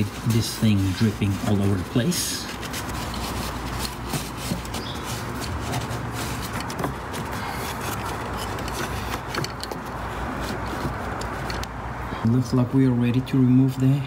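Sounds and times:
paper towels rustling: 0.0s - 8.3s
steady background noise: 0.0s - 14.0s.

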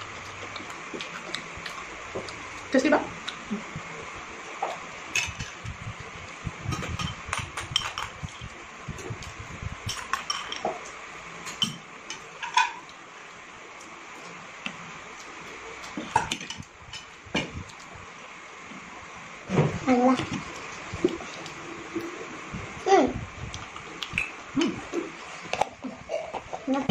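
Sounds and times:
soft chewing: 0.1s - 3.7s
forks clinking on plates: 9.9s - 10.8s.

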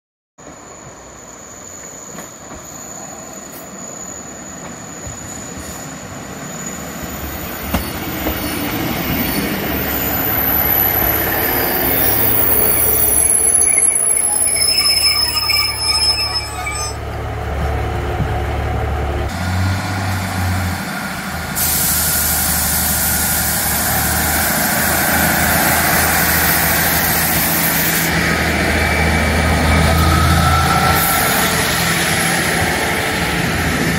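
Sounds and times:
train running and wheel noise: 0.4s - 33.9s
high brake squeals: 0.6s - 17.1s, 28.8s - 32.3s.

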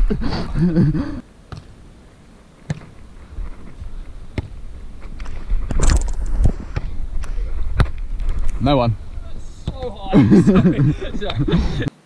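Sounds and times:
wind rumble on microphone: 3.0s - 11.8s.

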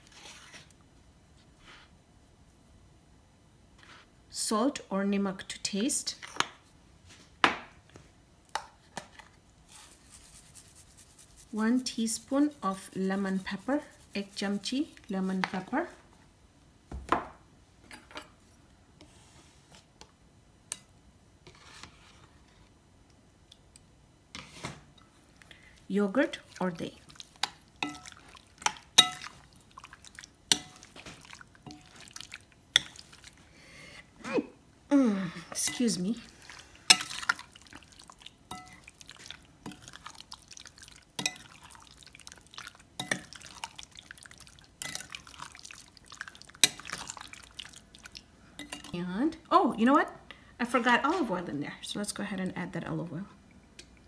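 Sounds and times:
wet squelching of marinade: 25.4s - 33.5s, 35.6s - 48.8s
spoon clinking against glass bowl: 38.5s - 38.8s.

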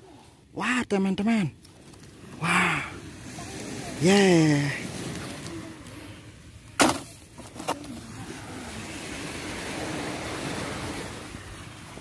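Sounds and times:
wind: 0.0s - 12.0s
surf rushing: 2.2s - 7.3s, 8.0s - 12.0s.

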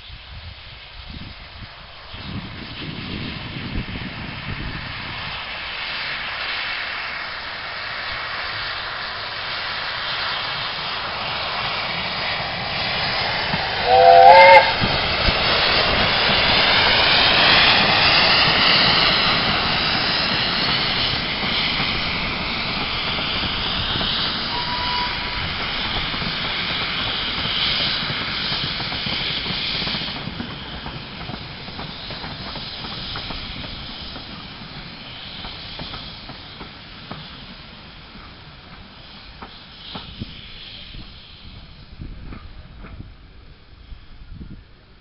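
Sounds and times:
steam locomotive running past: 0.0s - 45.0s
steam train chime whistle: 13.8s - 14.9s, 24.4s - 25.7s.

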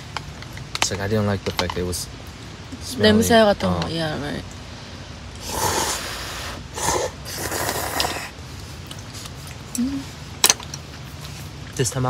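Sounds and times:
slurping broth: 5.4s - 8.4s.

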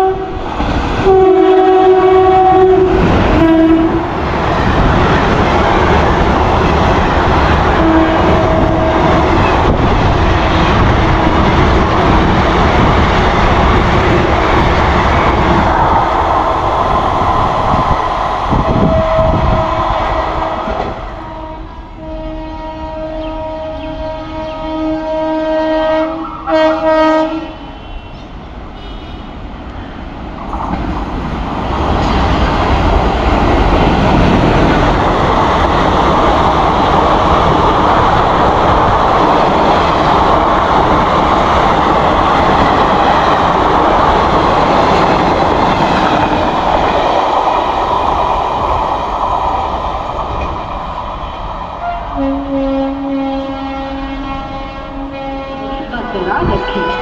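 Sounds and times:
train horn blasts: 0.0s - 0.4s, 1.0s - 4.1s, 7.7s - 9.5s, 18.7s - 19.7s, 21.2s - 28.2s, 28.8s - 29.3s, 51.8s - 57.0s
train wheels rumbling on rails: 0.0s - 57.0s.

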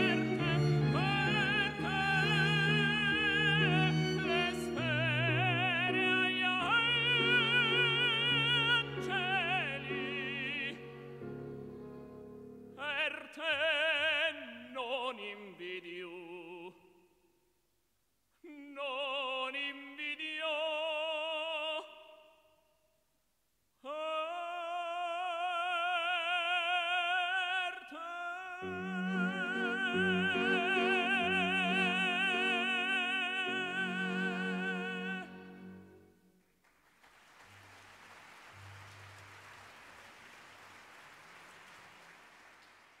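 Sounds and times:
operatic tenor singing: 0.0s - 11.3s, 12.8s - 16.9s, 18.4s - 22.3s, 23.8s - 36.1s
piano and string quartet: 0.0s - 12.4s, 28.6s - 36.0s
audience applause: 36.6s - 43.0s.

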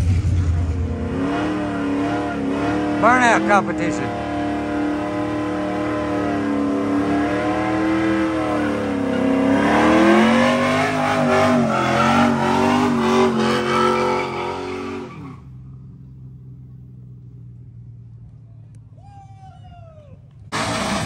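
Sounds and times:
car engine revving hard: 0.0s - 15.3s, 20.5s - 21.0s.

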